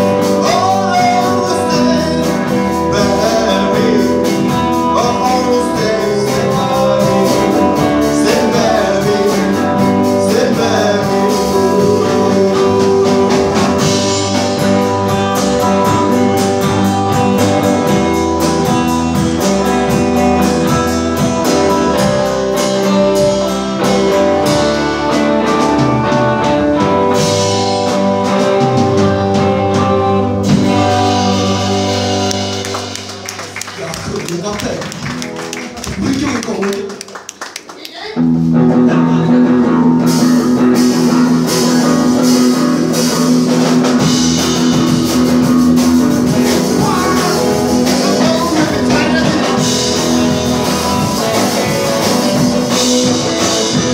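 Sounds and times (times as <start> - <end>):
man singing: 0.0 - 17.2, 28.4 - 32.6, 38.7 - 42.9, 46.2 - 53.9
upright bass: 0.0 - 37.2, 37.9 - 53.9
drum kit: 0.0 - 53.9
electric guitar: 0.0 - 53.9.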